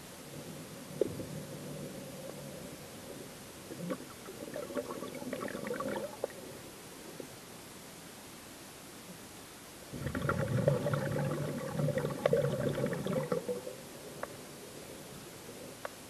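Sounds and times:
air bubbles gurgling underwater: 3.7 - 6.4, 9.9 - 13.8.

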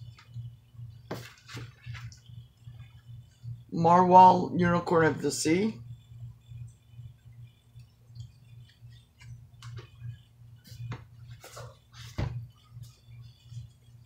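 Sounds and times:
steady low hum: 0.0 - 14.0
book thumping down: 1.1 - 1.7, 10.9 - 12.4
paper rustling: 1.1 - 2.2.

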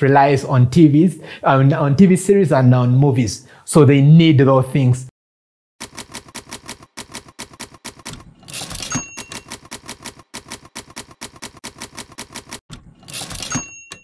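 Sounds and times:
typewriter carriage return: 5.8 - 14.0
typewriter key clacks: 5.8 - 14.0
typewriter bell ding: 8.5 - 14.0.

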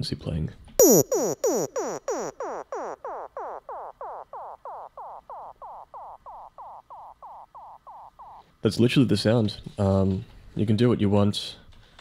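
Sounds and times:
synth zap with echoing delay: 0.8 - 8.5.

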